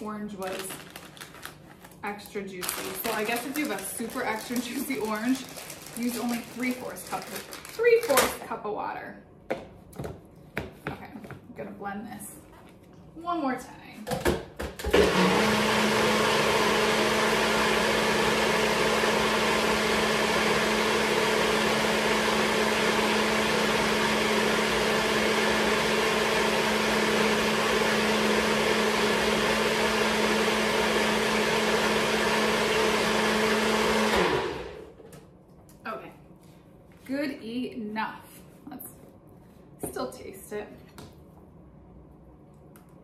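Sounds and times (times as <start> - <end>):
blender motor running: 14.8 - 35.0.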